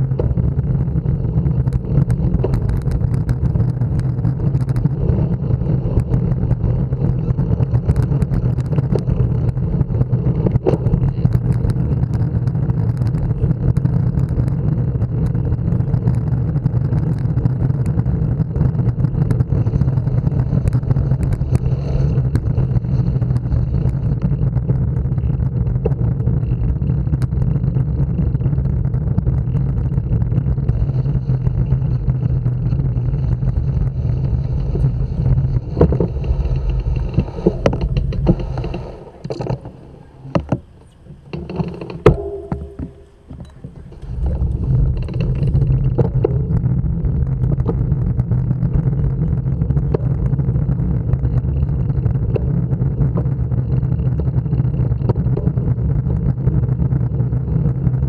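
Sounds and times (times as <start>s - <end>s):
sharp clicks and knocks: 0.0s - 27.6s, 28.3s - 50.6s
wind and road vibration rumble: 0.0s - 58.0s.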